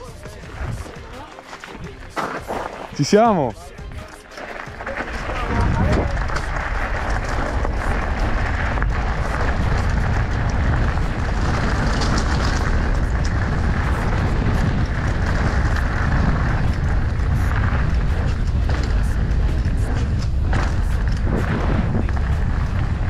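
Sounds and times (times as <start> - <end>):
wind buffeting microphone: 5.0 - 23.0.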